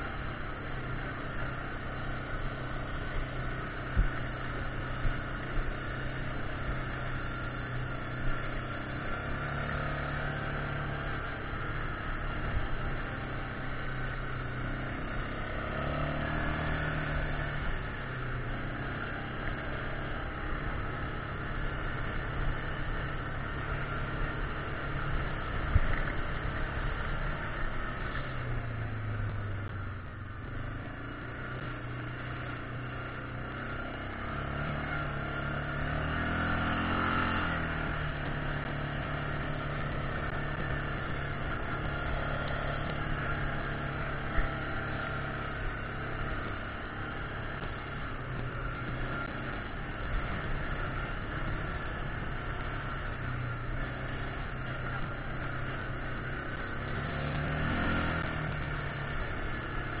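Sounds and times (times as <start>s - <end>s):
atv engine running: 0.0s - 60.0s.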